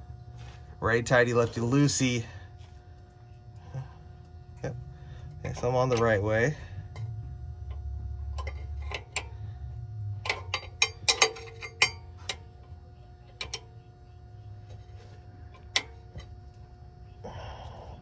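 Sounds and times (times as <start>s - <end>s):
metallic clicks of a wrench: 10.2s - 12.5s, 13.4s - 13.7s.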